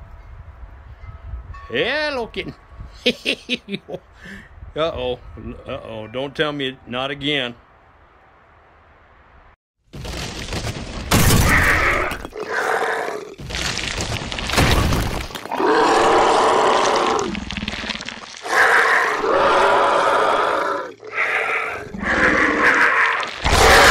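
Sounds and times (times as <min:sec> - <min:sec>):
crashing debris: 0:09.9 - 0:12.4, 0:13.4 - 0:15.6, 0:16.7 - 0:18.5, 0:23.1 - 0:23.9
monster growls and roars: 0:11.2 - 0:13.8, 0:14.6 - 0:23.9.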